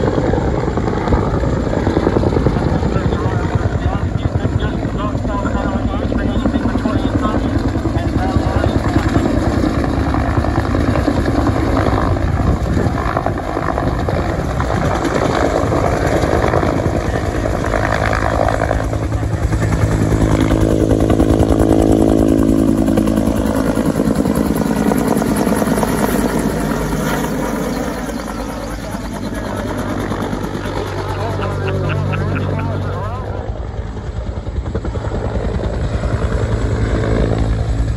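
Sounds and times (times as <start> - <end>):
helicopter rotor beating: 0.0 - 37.9
engine whine: 15.7 - 37.9.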